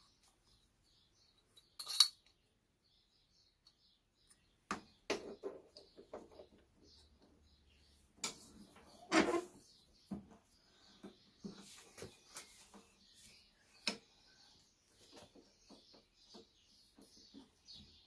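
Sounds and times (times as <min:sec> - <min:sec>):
metal parts clinking and knocking: 0:01.6 - 0:02.3.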